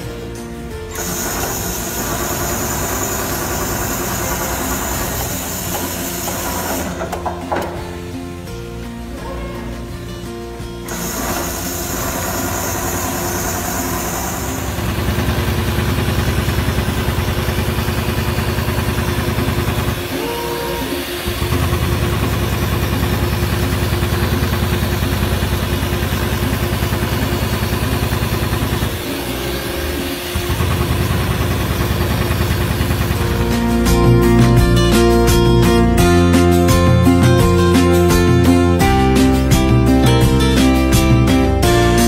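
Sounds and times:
sewing machine needle punching: 0:00.9 - 0:07.8, 0:10.9 - 0:20.2.

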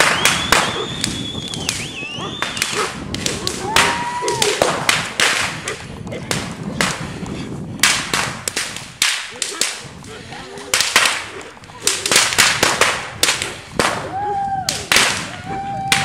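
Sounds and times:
firework whistle: 0:00.0 - 0:02.8
fireworks cracking and banging: 0:00.0 - 0:16.0.

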